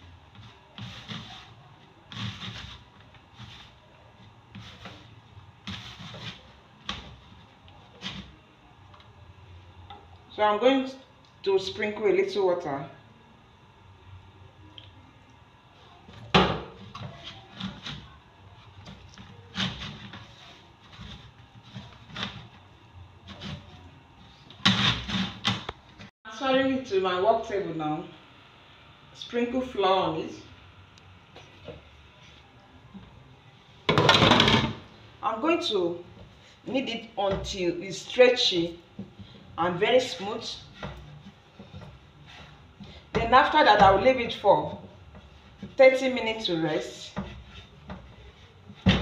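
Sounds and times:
hand kneading dough in bowl: 0.0s - 8.4s
hand mixing dough in bowl: 0.0s - 9.6s, 15.6s - 26.1s, 35.0s - 49.0s.

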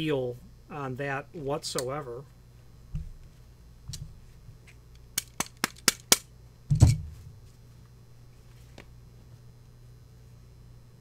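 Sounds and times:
heavier knock: 6.7s - 7.4s.

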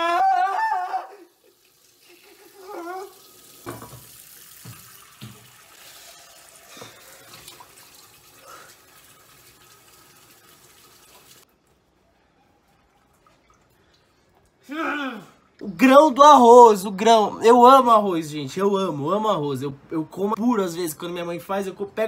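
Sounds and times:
man screaming in disgust: 0.0s - 1.3s, 14.6s - 16.7s
faucet running into sink: 1.4s - 11.4s.

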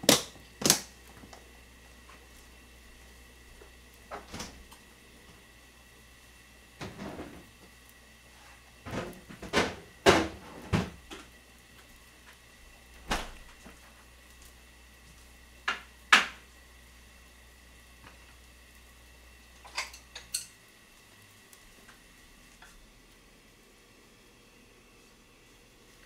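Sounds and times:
kitchen knocks and clacks: 8.9s - 11.2s, 15.7s - 16.4s.

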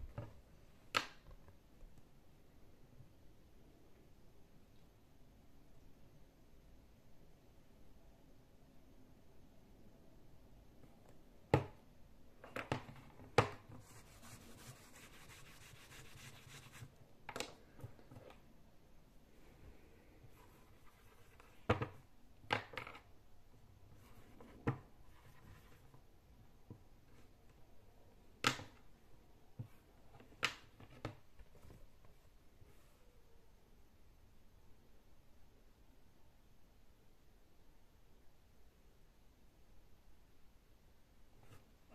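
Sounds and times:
soft rubbing on whiteboard: 13.7s - 17.0s, 20.3s - 21.7s, 24.0s - 26.0s.

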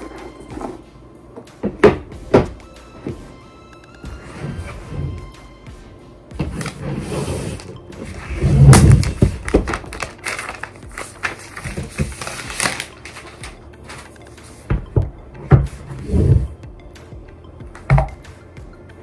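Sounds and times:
plastic sheet crinkling: 8.6s - 14.1s.

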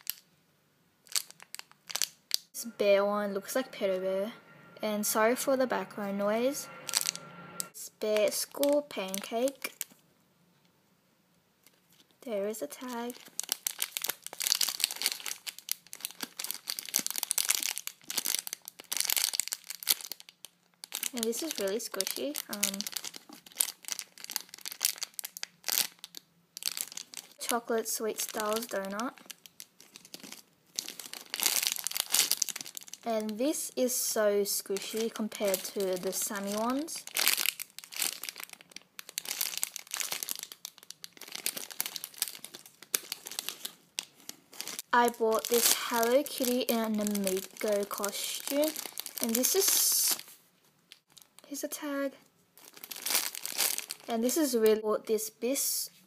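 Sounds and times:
plastic bag crinkling: 0.0s - 0.2s, 1.0s - 2.5s, 8.0s - 10.0s, 12.7s - 51.8s, 52.6s - 54.6s.

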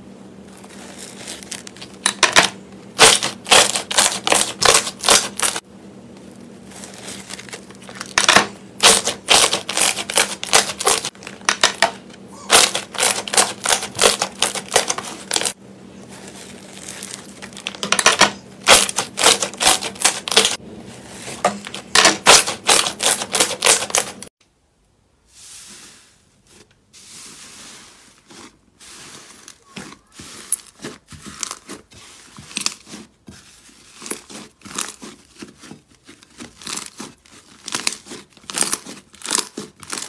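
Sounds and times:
thick slime squishing: 0.4s - 2.0s, 3.0s - 5.6s, 8.8s - 11.2s, 12.4s - 17.8s, 25.5s - 40.0s.

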